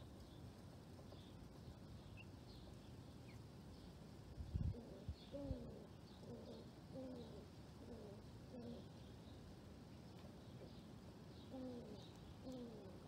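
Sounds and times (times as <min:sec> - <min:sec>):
small birds chirping: 0:00.0 - 0:13.0
dove cooing: 0:04.7 - 0:08.9, 0:11.5 - 0:13.0.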